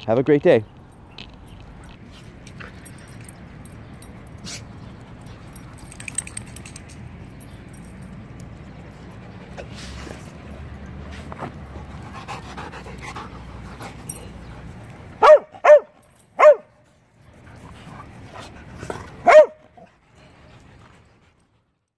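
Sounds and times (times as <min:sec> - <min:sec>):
dog barking: 0:15.2 - 0:16.7, 0:19.2 - 0:19.7.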